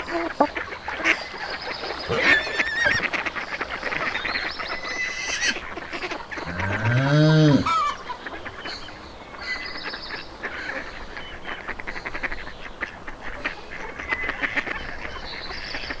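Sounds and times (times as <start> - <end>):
poultry calling: 0.0 - 16.0.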